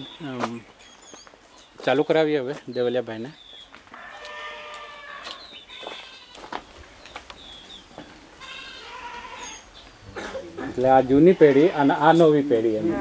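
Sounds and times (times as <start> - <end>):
bird chirps: 2.6 - 3.8
animal bleating: 3.9 - 6.5, 8.4 - 9.7, 11.1 - 13.0.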